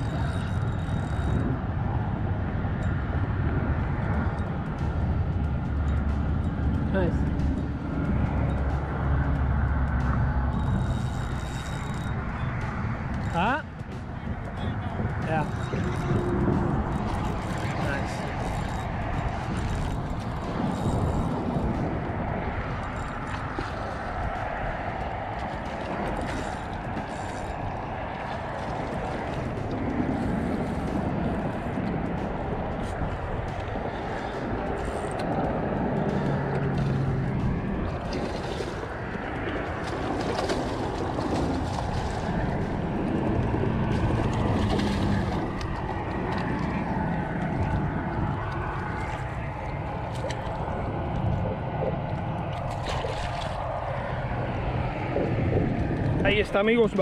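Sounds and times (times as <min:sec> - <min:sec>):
wind rumbling on microphone: 0:00.0 - 0:57.0
water lapping against rocks: 0:11.8 - 0:57.0
sharp water splashes: 0:36.1 - 0:51.3, 0:52.0 - 0:55.1.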